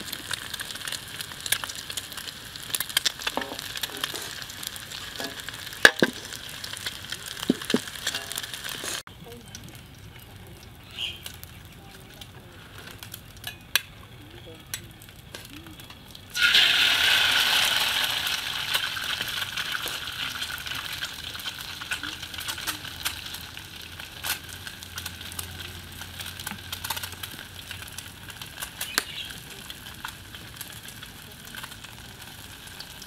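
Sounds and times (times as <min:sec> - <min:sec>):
egg sizzling in hot oil: 0:00.0 - 0:12.4, 0:15.9 - 0:33.0
oil popping and spitting: 0:07.2 - 0:09.0.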